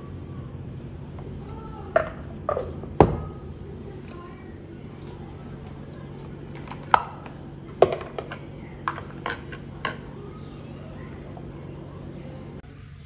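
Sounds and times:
low steady hum: 0:00.0 - 0:13.0
plastic containers clicking and knocking: 0:01.2 - 0:03.4, 0:06.5 - 0:10.1.

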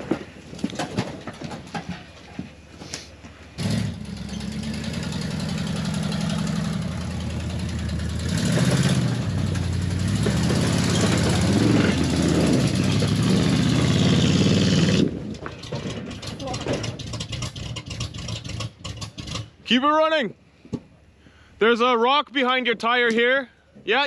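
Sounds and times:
off-road vehicle engine revving: 0:03.5 - 0:19.7.

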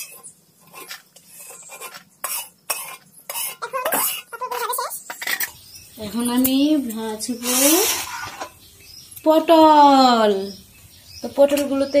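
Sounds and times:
metal spatula scraping iron pan: 0:00.0 - 0:03.6, 0:07.4 - 0:08.6.

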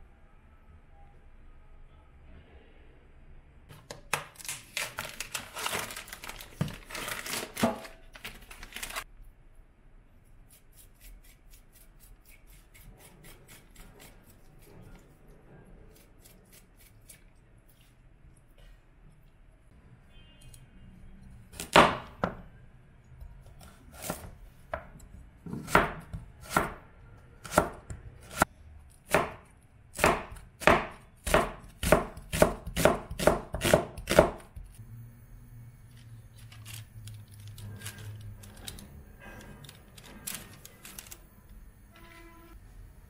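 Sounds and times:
cleaver chopping onion on board: 0:25.5 - 0:26.8, 0:27.4 - 0:28.4, 0:30.0 - 0:34.7.

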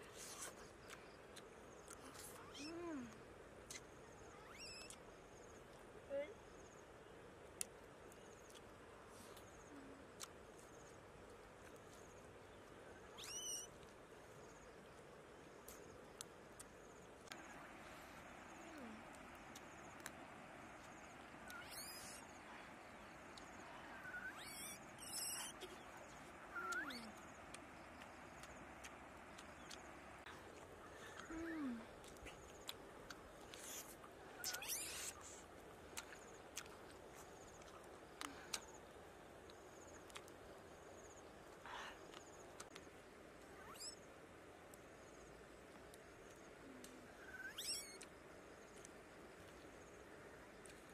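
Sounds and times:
faint steady hiss: 0:00.0 - 0:50.9
animal whining call: 0:21.5 - 0:22.3, 0:23.8 - 0:25.8, 0:26.5 - 0:27.1, 0:47.2 - 0:48.0.

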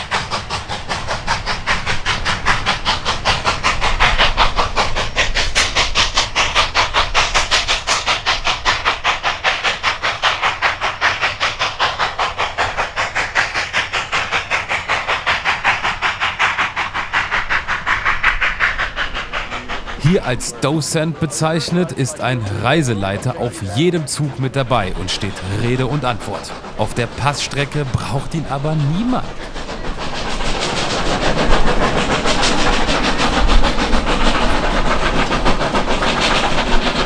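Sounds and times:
steam hissing: 0:00.0 - 0:37.0
steam locomotive chuffing: 0:00.0 - 0:37.0.

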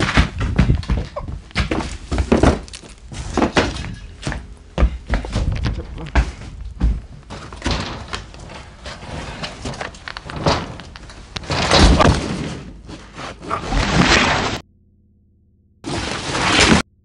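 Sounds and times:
knocks and thuds of clutter: 0:00.0 - 0:13.5.

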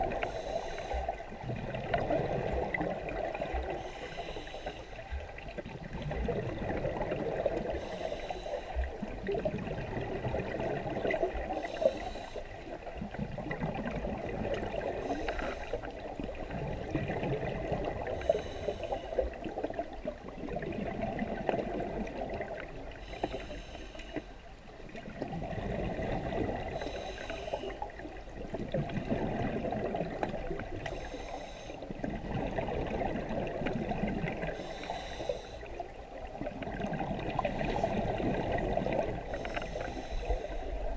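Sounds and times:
exhaled air bubbling underwater: 0:00.0 - 0:40.9
regulator inhalation hiss: 0:00.2 - 0:01.1, 0:03.8 - 0:05.0, 0:07.8 - 0:08.8, 0:11.6 - 0:12.5, 0:26.8 - 0:27.8, 0:31.0 - 0:31.8, 0:34.6 - 0:35.7, 0:39.3 - 0:40.7.

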